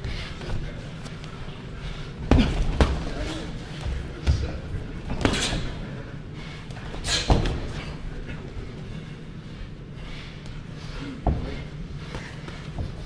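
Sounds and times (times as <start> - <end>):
boxing gloves thudding: 2.2 - 3.2, 7.1 - 7.8.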